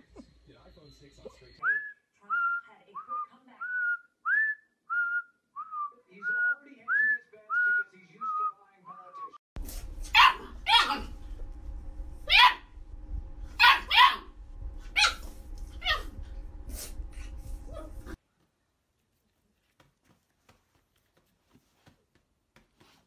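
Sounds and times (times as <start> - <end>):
dog barking sharply: 10.1 - 11.1, 13.6 - 14.3.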